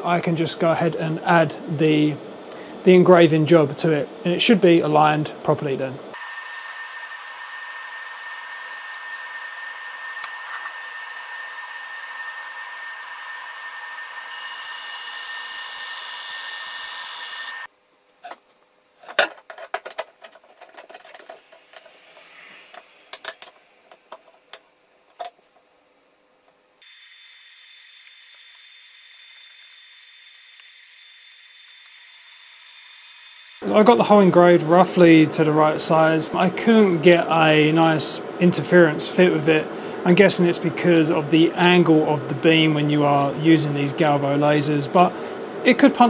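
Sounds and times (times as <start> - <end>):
fume extractor running: 6.2 - 17.7
laser engraver hissing: 6.2 - 17.7
clicks and knocks of metal parts: 18.2 - 22.0, 23.0 - 25.4.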